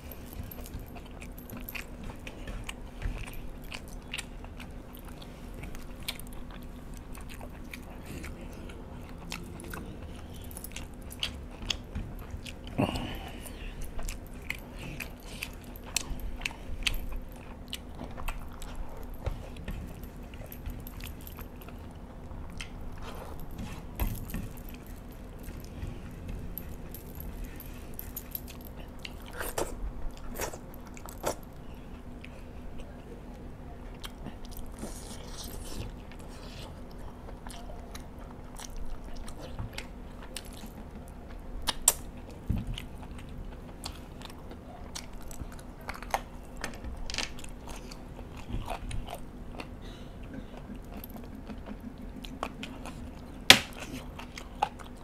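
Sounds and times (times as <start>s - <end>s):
chewing and lip-smacking: 0.0s - 55.0s
faint steady hum: 0.0s - 55.0s.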